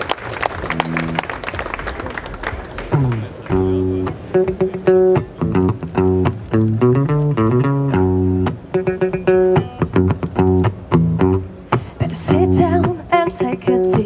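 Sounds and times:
applause: 0.0s - 3.6s
electric guitar playing: 0.4s - 1.7s, 2.8s - 14.0s.

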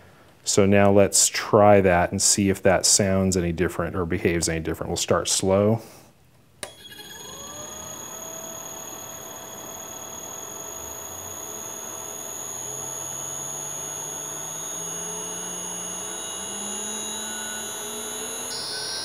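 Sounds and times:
electric motor hum rising in pitch: 6.7s - 19.0s
steady high whistle: 6.7s - 19.0s.

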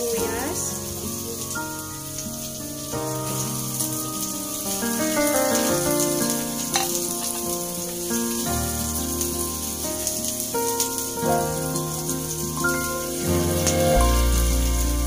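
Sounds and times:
garlic and onion sizzling in oil: 0.0s - 15.0s
instrumental music: 0.0s - 15.0s.

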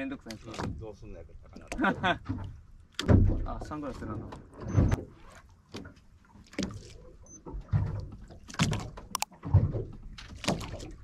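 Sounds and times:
dull thumps and knocks: 1.6s - 6.9s, 7.5s - 11.0s.

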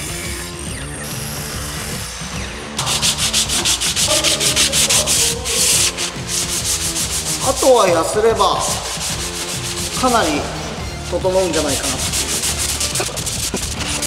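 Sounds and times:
sandpaper rasping on wood: 2.8s - 14.0s.

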